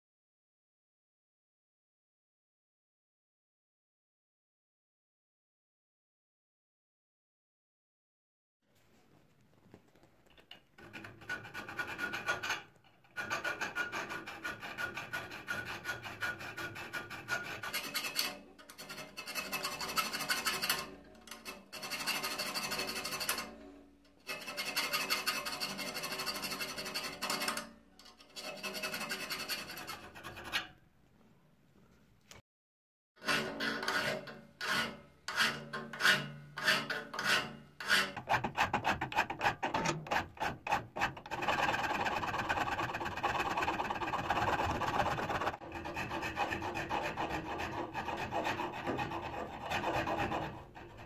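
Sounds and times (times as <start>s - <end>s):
hand file rasping on steel: 10.8s - 30.7s, 33.2s - 51.0s.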